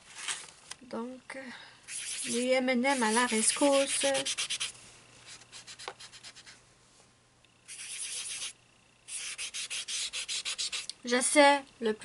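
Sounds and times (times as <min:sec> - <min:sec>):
pad scrubbing pastel on paper: 0:01.9 - 0:04.7, 0:07.7 - 0:08.5, 0:09.1 - 0:10.8.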